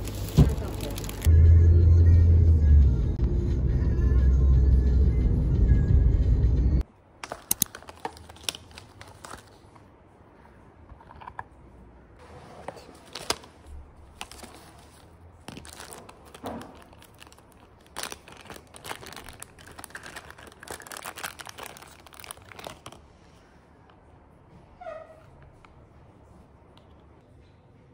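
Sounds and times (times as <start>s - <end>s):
plastic bags crinkling: 0.0s - 1.3s, 7.2s - 9.7s, 12.9s - 23.0s.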